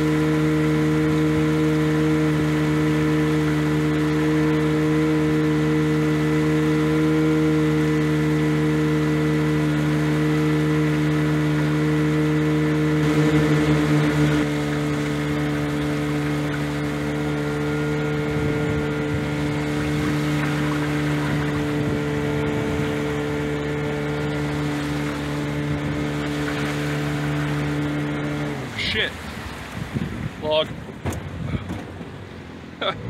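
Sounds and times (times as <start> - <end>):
outboard motor running: 0.0 - 33.0.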